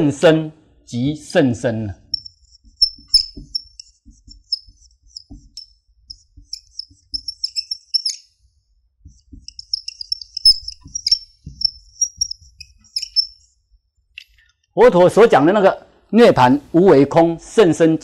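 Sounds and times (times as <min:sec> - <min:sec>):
whiteboard marker squeaking: 0:02.1 - 0:08.4, 0:09.0 - 0:13.6
marker tip knocking: 0:02.2 - 0:08.2, 0:09.0 - 0:13.4.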